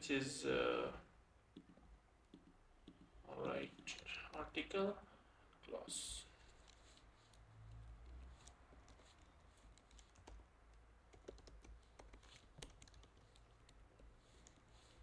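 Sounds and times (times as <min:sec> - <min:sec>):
computer keyboard typing: 0:08.1 - 0:10.5, 0:11.1 - 0:14.6.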